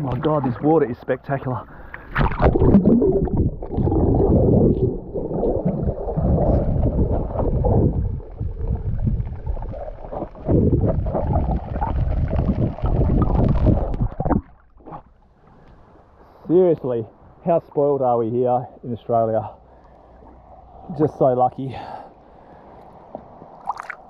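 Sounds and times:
muffled water sloshing and gurgling: 0.0s - 16.0s, 22.2s - 24.0s.

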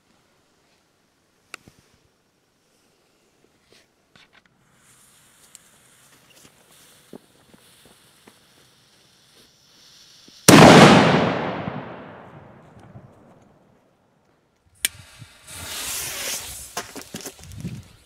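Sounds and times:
firecracker bang: 10.5s - 13.1s.

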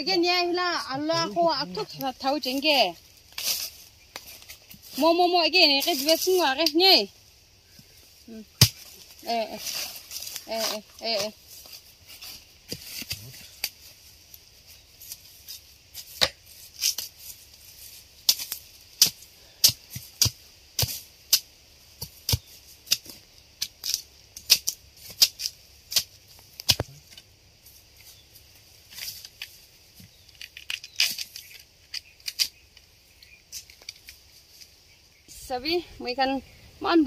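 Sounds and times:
machete chopping bamboo: 8.6s - 9.1s, 16.0s - 17.1s, 18.2s - 27.2s.

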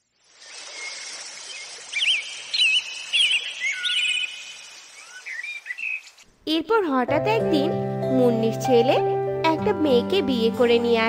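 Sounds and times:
outdoor ambience hiss: 0.0s - 7.1s
birds chirping: 0.3s - 6.3s.

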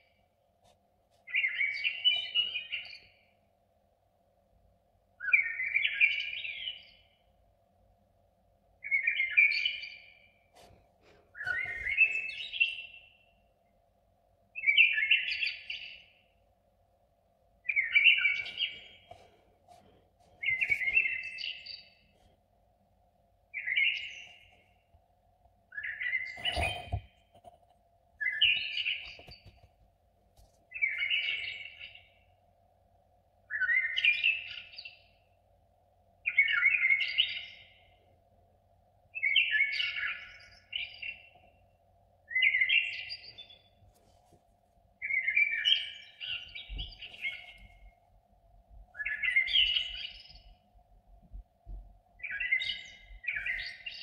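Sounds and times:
songbird singing warbled phrases: 5.2s - 7.1s, 14.6s - 16.2s, 17.6s - 18.9s, 23.6s - 24.4s, 30.7s - 32.1s, 36.3s - 37.9s, 42.3s - 43.6s, 45.0s - 47.6s, 49.0s - 50.6s, 52.2s - 54.0s
faint steady hum: 6.9s - 54.0s.

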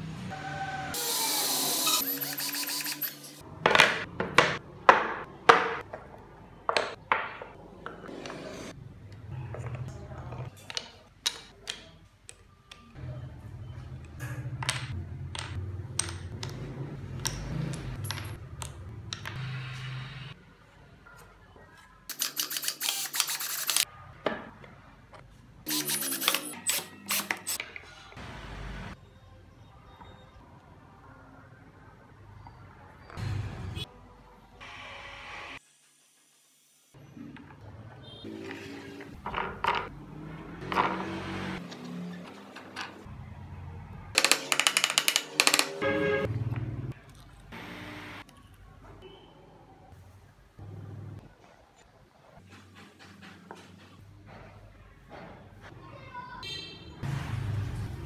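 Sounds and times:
wooden parts clattering: 44.2s - 45.8s.

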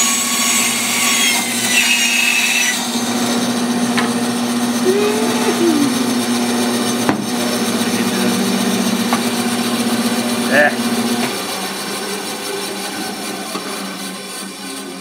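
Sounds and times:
saw blade cutting wood: 0.0s - 4.2s, 11.2s - 15.0s
bandsaw motor hum: 0.0s - 15.0s.

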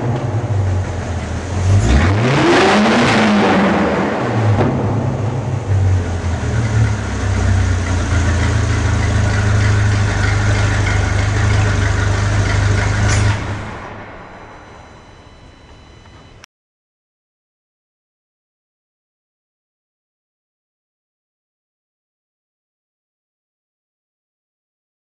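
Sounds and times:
car engine revving and idling: 0.0s - 16.4s.

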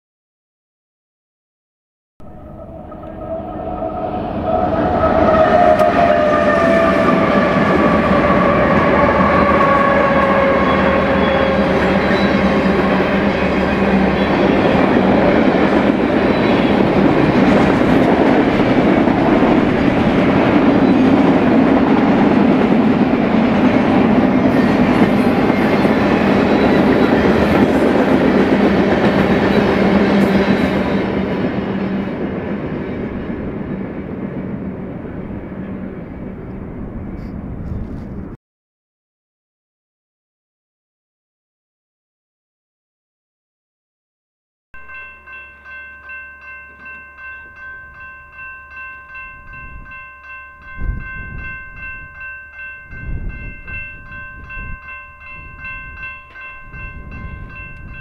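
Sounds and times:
train horn chord: 2.2s - 14.5s
train cars rumbling past: 2.2s - 38.4s.

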